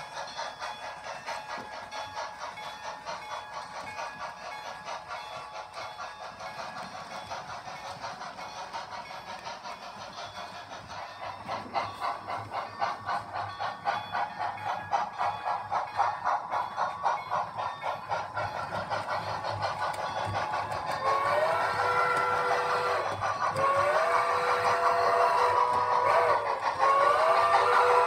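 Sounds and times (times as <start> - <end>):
model steam locomotives chuffing: 0.0 - 28.0
steam whistle: 21.0 - 28.0.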